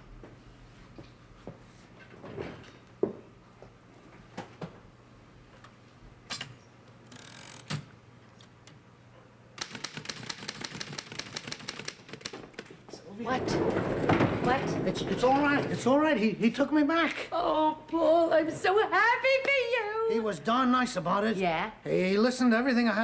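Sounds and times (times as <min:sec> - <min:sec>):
manual typewriter keystrokes: 0:09.6 - 0:12.6.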